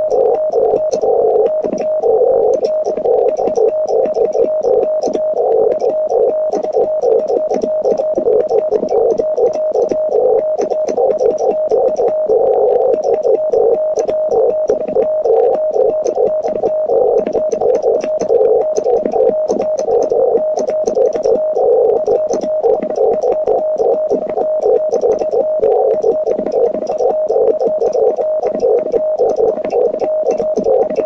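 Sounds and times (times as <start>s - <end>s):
morse code beeping: 0.0s - 31.0s.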